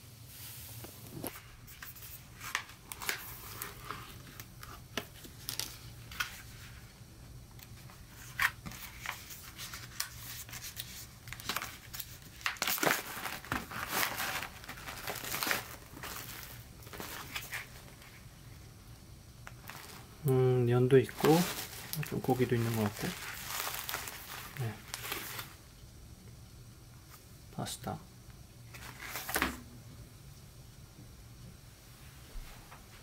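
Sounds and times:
foil pouch crinkling and tearing: 1.2s - 6.8s, 7.7s - 18.3s, 19.4s - 25.6s, 28.7s - 29.4s.

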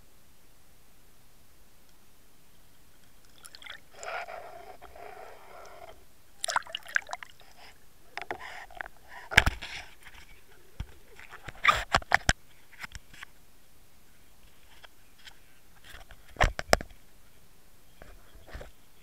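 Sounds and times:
water splashing and dripping: 3.2s - 4.1s, 6.4s - 7.4s
rush of water: 3.2s - 12.0s.

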